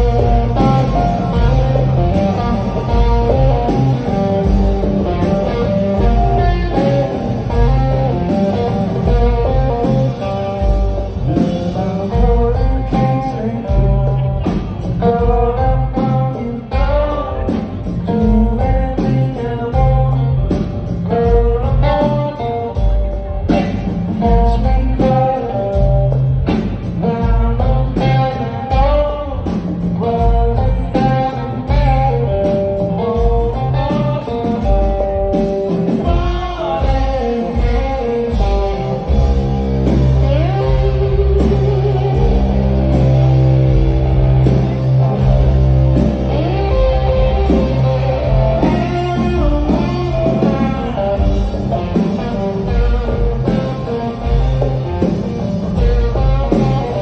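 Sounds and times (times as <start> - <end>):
drum kit: 0.0 - 57.0
electric guitar riff: 0.0 - 57.0
live blues-rock band: 0.0 - 57.0
man singing: 11.3 - 26.2, 27.0 - 32.3.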